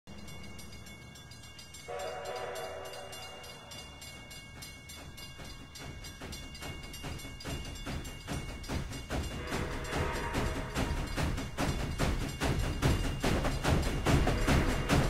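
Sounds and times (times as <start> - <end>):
toy train steam whistle: 1.9 - 4.2, 9.3 - 11.8, 14.2 - 15.0.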